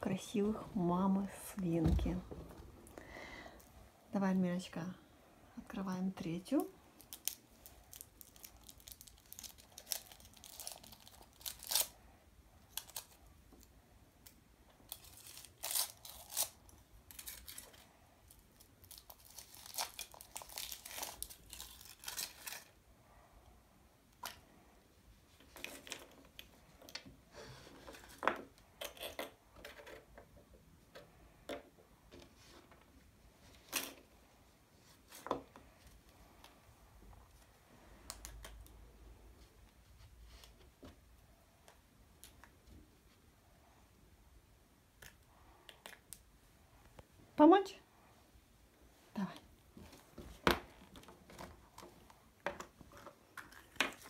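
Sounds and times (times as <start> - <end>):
foil wrapper crinkling and tearing: 7.0 - 12.0, 12.7 - 13.2, 14.9 - 22.8.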